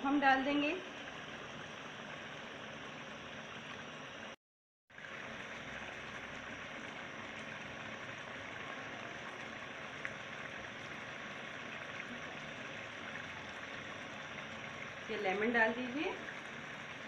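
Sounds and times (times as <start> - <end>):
sauce sizzling in oil: 4.9 - 17.0.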